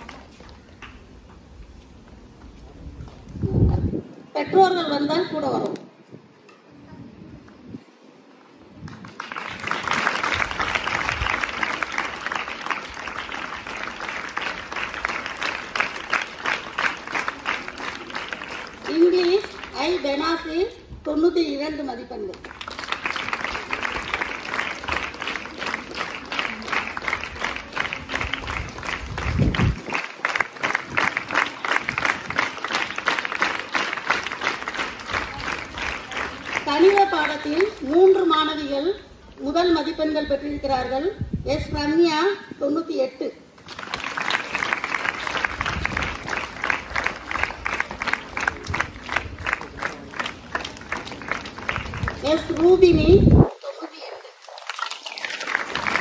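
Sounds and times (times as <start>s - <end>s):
people clapping: 0.0s - 1.1s, 8.7s - 20.5s, 22.2s - 38.2s, 43.6s - 56.0s
audience applauding: 8.8s - 19.8s, 22.4s - 37.8s, 43.6s - 52.8s, 54.3s - 56.0s.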